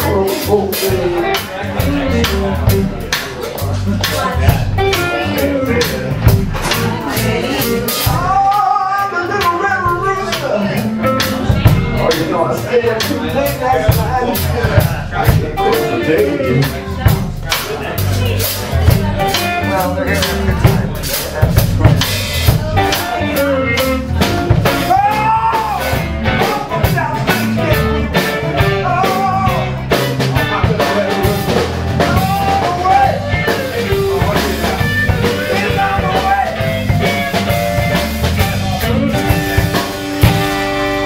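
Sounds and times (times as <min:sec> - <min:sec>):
drum kit: 0:00.0 - 0:41.0
electric bass: 0:00.0 - 0:41.0
electric guitar: 0:00.0 - 0:41.0.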